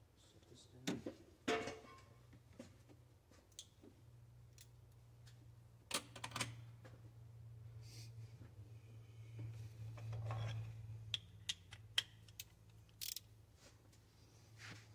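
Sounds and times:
low steady hum: 4.0s - 14.9s.

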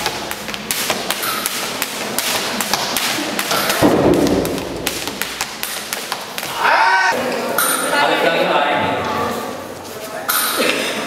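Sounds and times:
feet tapping on tiled floor: 0.0s - 6.7s
heavy landing thud: 3.8s - 5.5s.

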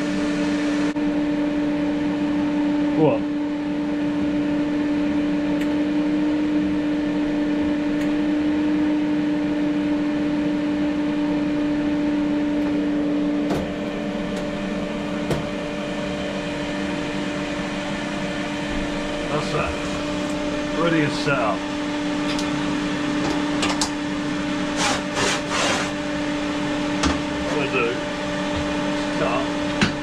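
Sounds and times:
welder machine hum: 0.0s - 30.0s.

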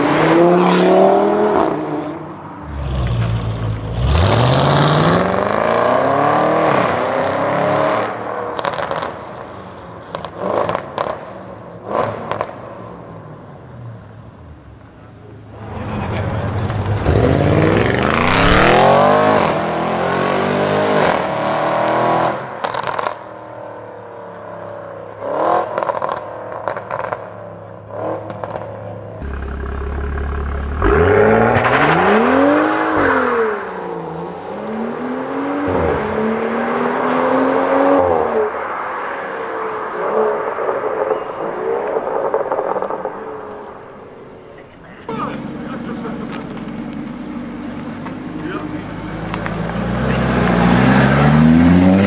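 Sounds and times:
sports car engines accelerating past: 45.3s - 52.0s.

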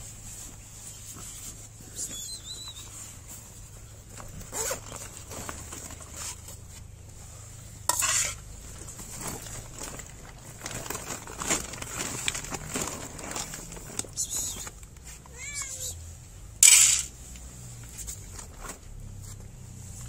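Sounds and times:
plate clattering on tiles: 16.6s - 17.1s.

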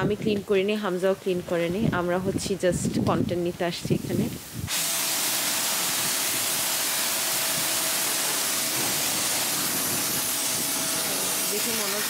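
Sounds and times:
pressure washer spraying paving: 4.0s - 12.0s.

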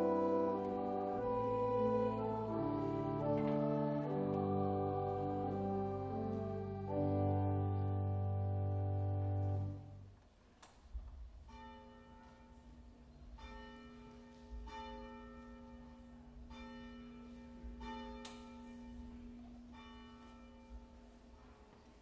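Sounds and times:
instrumental music held chord: 0.0s - 10.2s.

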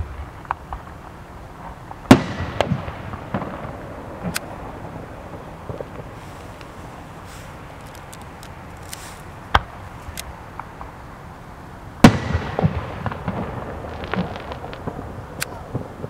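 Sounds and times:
firework crack: 0.0s - 16.0s
small firework pops: 1.9s - 4.5s, 12.0s - 15.9s
loud firework bang with rumble: 2.1s - 6.2s, 12.0s - 16.0s.

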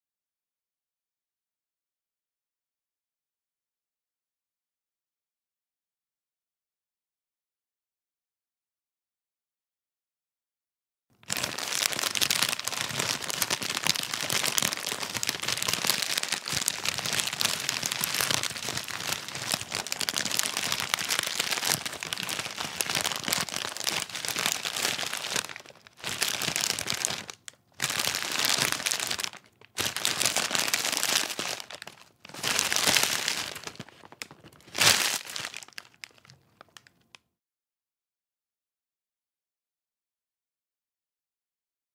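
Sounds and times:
chip bag crinkling: 11.2s - 37.1s
chips crunching: 11.3s - 36.8s.

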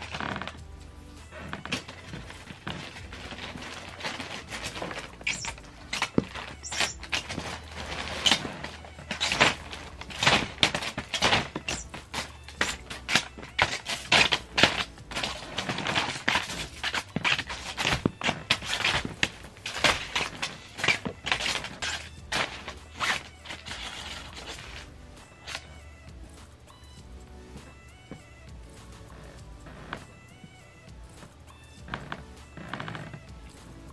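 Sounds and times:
paper crinkling and rustling: 0.0s - 0.6s, 1.3s - 25.8s.

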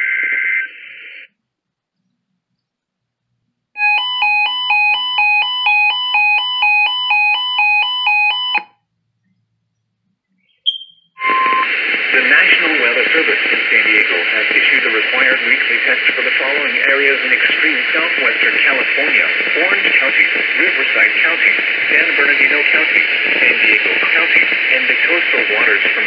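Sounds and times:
radio hiss: 0.0s - 1.4s, 11.2s - 26.0s.

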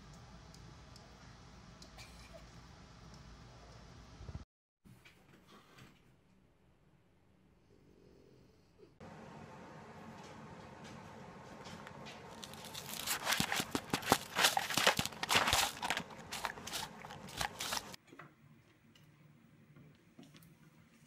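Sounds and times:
dog crunching food off plate: 12.3s - 18.0s.

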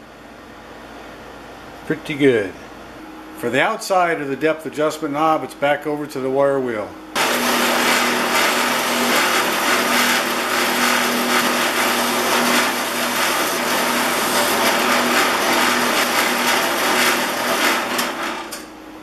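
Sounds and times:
motor hum: 6.8s - 19.0s
wire wheel scratching brass: 7.2s - 18.6s.

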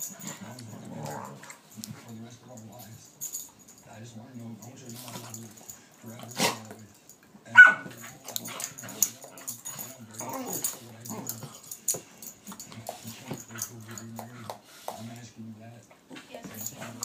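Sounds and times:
low dog vocal noises: 0.0s - 1.8s, 7.9s - 15.0s
dogs scuffling: 0.0s - 17.0s
dog yipping: 7.6s - 7.9s.

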